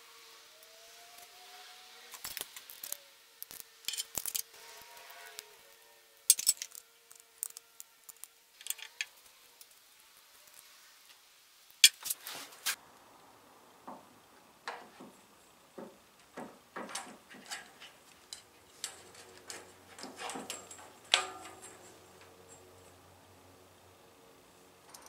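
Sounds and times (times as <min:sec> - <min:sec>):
hand tools clinking on steel parts: 0:03.5 - 0:04.5, 0:06.3 - 0:09.1, 0:15.8 - 0:22.8
metal knocks ringing: 0:15.8 - 0:22.2.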